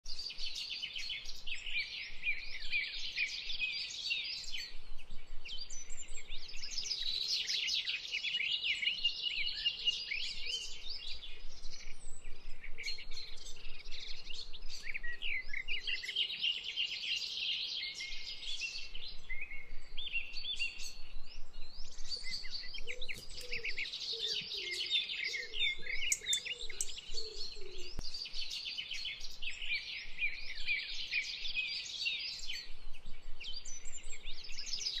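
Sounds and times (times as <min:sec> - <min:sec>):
small birds chirping: 0:00.1 - 0:35.0
low warbling bird call: 0:22.3 - 0:28.0.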